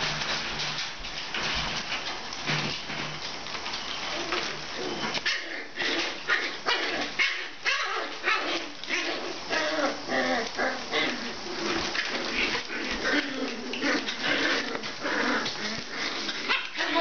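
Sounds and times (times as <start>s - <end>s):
puppies yipping and barking: 3.6s - 17.0s.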